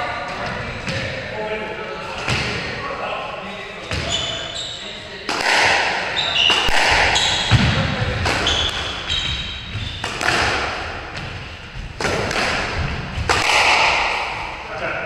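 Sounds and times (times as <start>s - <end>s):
sneakers squeaking on wooden floor: 3.8s - 5.0s, 6.0s - 12.0s
squash ball cracking off rackets: 5.3s - 11.3s, 11.9s - 14.4s.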